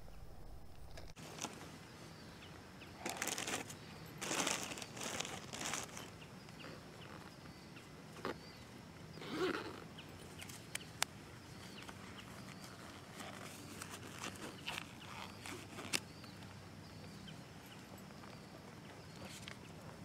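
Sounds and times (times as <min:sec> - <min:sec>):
faint low hum: 0:00.0 - 0:20.0
rustling and handling noise: 0:00.1 - 0:01.8, 0:03.0 - 0:07.5, 0:11.6 - 0:16.5.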